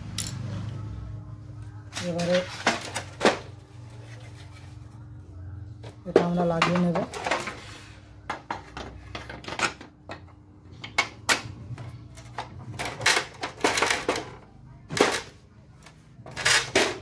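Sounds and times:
plastic parts clicking and knocking: 8.2 - 17.0.

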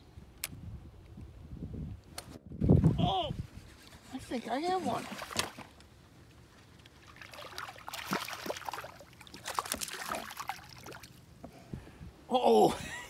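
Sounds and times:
fish splashing at water surface: 7.0 - 11.2.

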